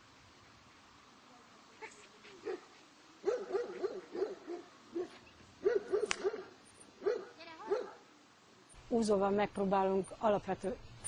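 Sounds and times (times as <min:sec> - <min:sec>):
dog barking: 0:02.4 - 0:08.0
sharp click: 0:06.0 - 0:06.3.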